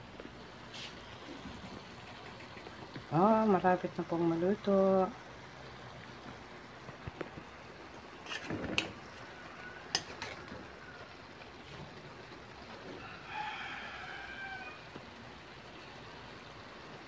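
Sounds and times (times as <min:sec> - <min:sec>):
metal spatula scraping wok: 0:08.2 - 0:09.1, 0:09.9 - 0:10.5
rooster crowing: 0:09.2 - 0:11.1, 0:12.9 - 0:14.9.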